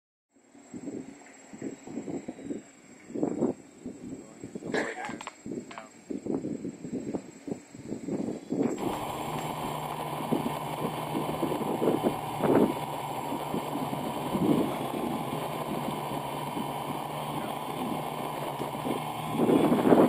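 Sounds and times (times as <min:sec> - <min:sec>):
wind gusts on microphone: 0:00.7 - 0:20.0
drone propellers humming: 0:08.7 - 0:20.0.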